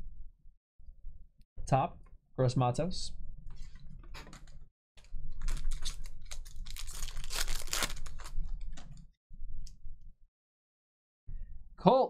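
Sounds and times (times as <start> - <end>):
foil pack tearing open: 5.4 - 8.6
cards clicking and crinkling: 5.4 - 9.0.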